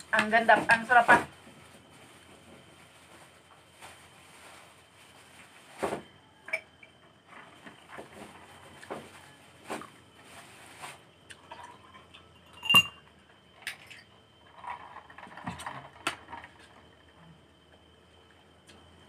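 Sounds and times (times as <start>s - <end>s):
sharp ringing clink: 12.4s - 13.0s.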